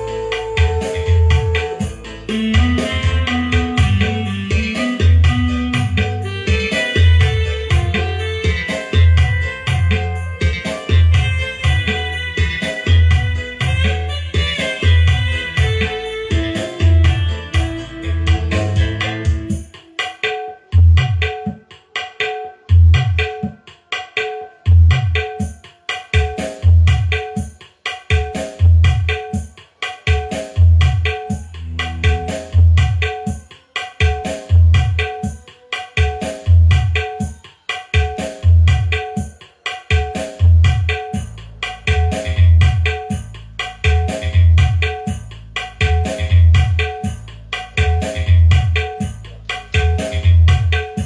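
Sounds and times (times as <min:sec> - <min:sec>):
hand-drum strokes: 0:00.0 - 0:51.0
loud music with deep bass beat: 0:00.0 - 0:51.0.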